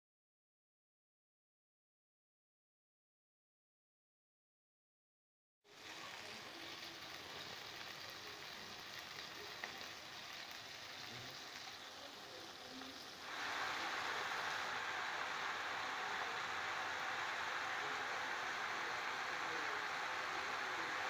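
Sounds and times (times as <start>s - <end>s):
onions sizzling in hot oil: 5.7s - 21.0s.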